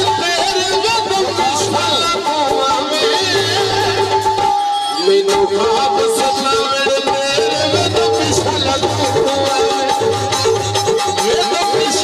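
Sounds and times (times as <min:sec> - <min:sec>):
instrumental folk music: 0:00.0 - 0:12.0.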